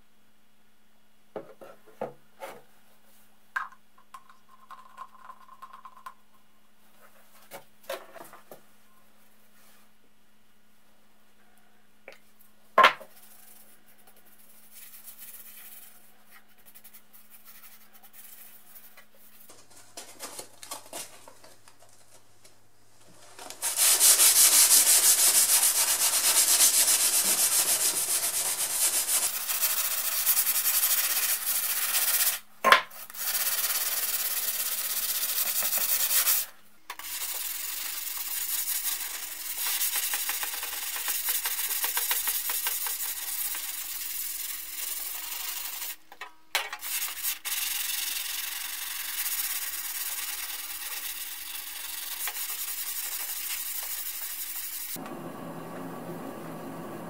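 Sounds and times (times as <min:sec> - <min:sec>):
sandpaper rubbing on steel: 0:23.6 - 0:32.4, 0:46.8 - 0:55.0.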